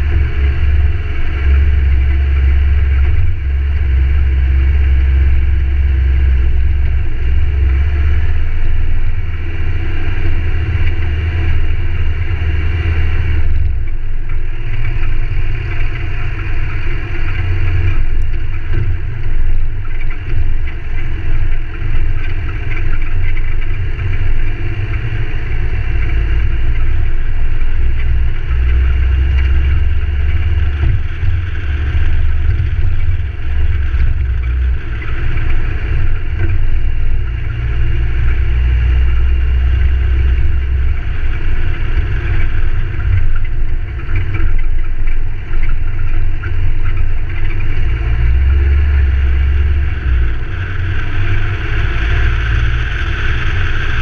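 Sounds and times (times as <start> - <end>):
vehicle engine rumble: 0.0 - 54.0.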